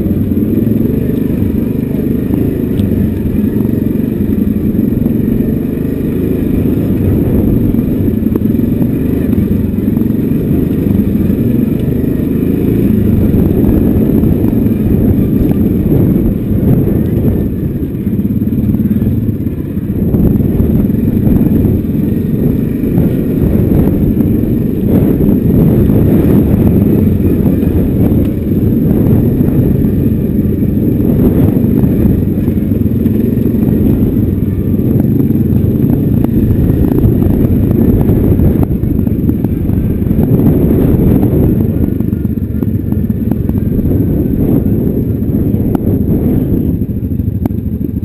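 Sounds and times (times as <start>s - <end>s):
atv engine running: 0.0s - 48.0s.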